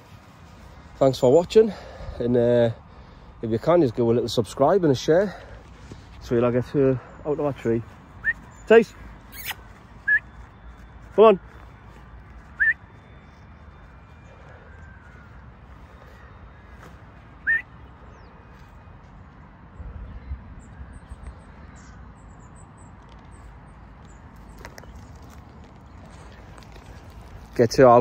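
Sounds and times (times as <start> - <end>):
short rising whistles: 8.2 - 11.0, 12.4 - 13.9, 17.4 - 17.8.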